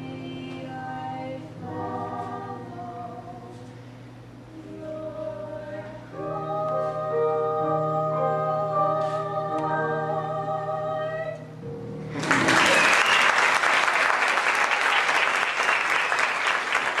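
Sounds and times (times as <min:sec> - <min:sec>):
man and woman singing duet: 0:04.6 - 0:11.5
audience applause: 0:12.1 - 0:17.0.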